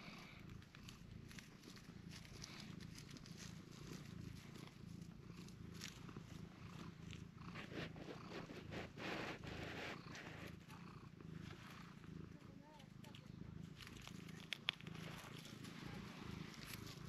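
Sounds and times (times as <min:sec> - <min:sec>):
cat purring: 0:00.0 - 0:17.0
fingers rubbing through fur: 0:00.0 - 0:17.0.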